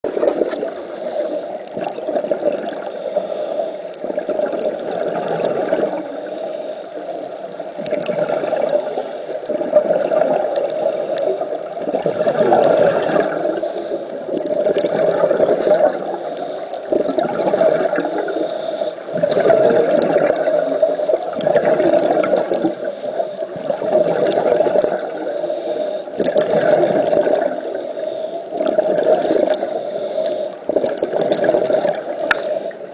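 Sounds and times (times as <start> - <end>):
exhaled bubbles rushing: 0.0 - 0.8, 1.6 - 3.0, 4.0 - 6.1, 7.2 - 10.7, 11.4 - 16.2, 16.8 - 18.3, 19.0 - 22.8, 23.5 - 25.3, 26.1 - 27.8, 28.5 - 29.8, 30.6 - 32.9
regulator inhale hiss: 0.6 - 1.8, 2.7 - 4.2, 5.9 - 7.6, 8.6 - 9.6, 10.4 - 11.8, 12.6 - 14.6, 15.9 - 17.2, 17.8 - 19.4, 20.2 - 21.5, 22.4 - 23.8, 24.9 - 26.2, 27.4 - 28.7, 29.4 - 30.8, 31.8 - 32.9.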